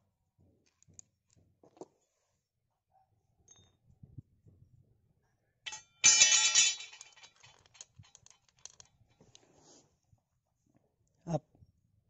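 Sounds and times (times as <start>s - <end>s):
metallic clang with ringing: 5.7s - 7.2s
metal parts clicking and rattling: 5.7s - 9.3s.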